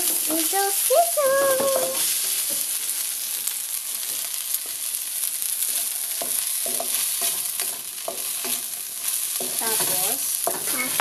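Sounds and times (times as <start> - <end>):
rice sizzling in hot oil: 0.0 - 11.0
wooden spatula scraping wok: 5.6 - 11.0.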